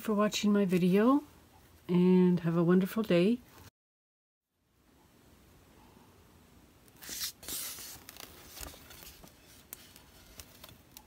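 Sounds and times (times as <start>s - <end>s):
scraping rustling handling noise: 7.0s - 11.0s.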